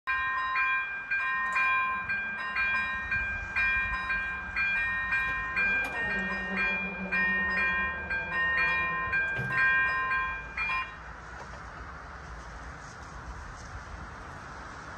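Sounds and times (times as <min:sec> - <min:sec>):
electronic warning bell ringing: 0:00.1 - 0:11.1
barrier motors humming: 0:04.2 - 0:10.8.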